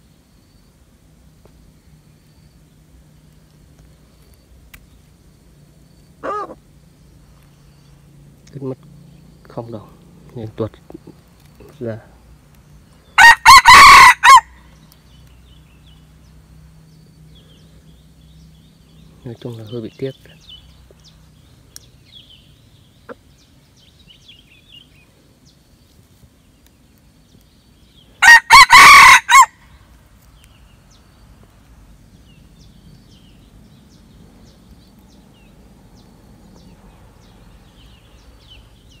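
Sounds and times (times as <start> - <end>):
faint outdoor background: 0.0 - 39.0
rooster crowing: 13.2 - 14.8, 28.2 - 29.7.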